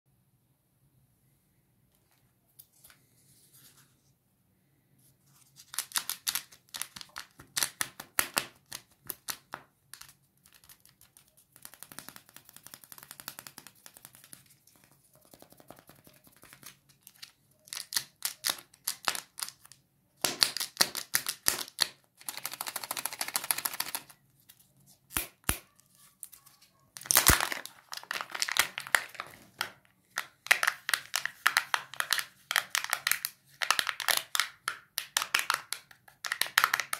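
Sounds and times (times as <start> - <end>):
plastic wrapper crinkling: 25.7 - 34.5
plastic tearing: 27.0 - 29.4.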